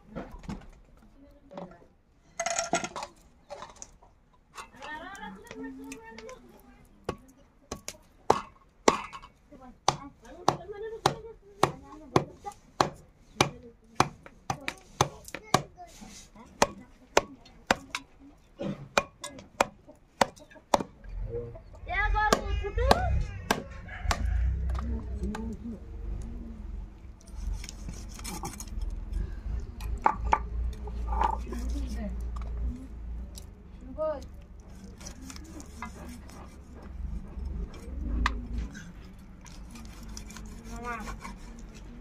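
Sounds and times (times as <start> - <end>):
blade chopping on wooden block: 9.9 - 15.7, 18.6 - 21.0, 22.3 - 25.4.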